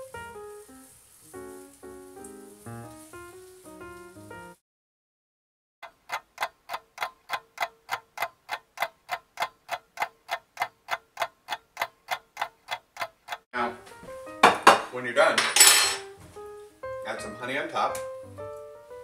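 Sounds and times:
clock-like ticking: 0:05.8 - 0:13.5.

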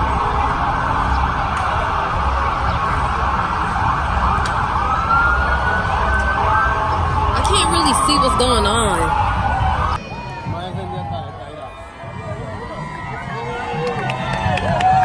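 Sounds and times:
emergency siren wailing: 0:00.0 - 0:11.0
low rumbling street noise: 0:00.0 - 0:15.0.

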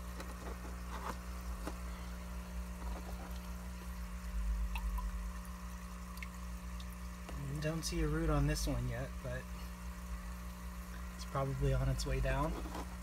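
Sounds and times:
air pump humming: 0:00.0 - 0:13.0
water bubbling: 0:03.0 - 0:07.3.

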